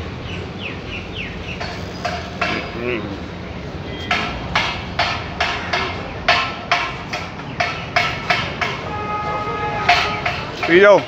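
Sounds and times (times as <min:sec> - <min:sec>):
street background noise: 0:00.0 - 0:11.0
sharp knocks: 0:01.6 - 0:02.8, 0:04.0 - 0:08.9, 0:09.8 - 0:11.0.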